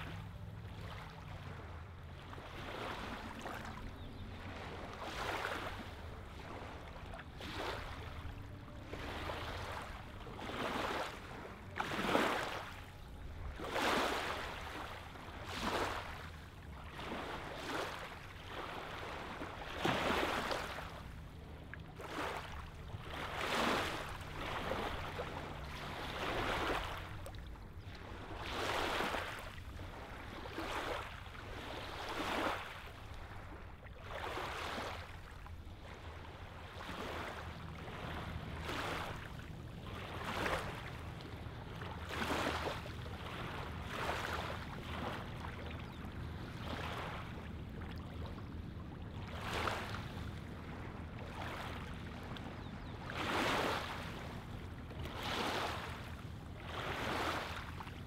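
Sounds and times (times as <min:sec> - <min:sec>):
low steady rumble: 0:00.0 - 0:58.0
waves lapping on gravelly shore: 0:02.4 - 0:03.6, 0:04.4 - 0:21.0, 0:21.9 - 0:27.3, 0:28.0 - 0:33.4, 0:34.0 - 0:35.3, 0:36.4 - 0:41.2, 0:41.9 - 0:45.3, 0:53.2 - 0:54.2, 0:55.1 - 0:57.8.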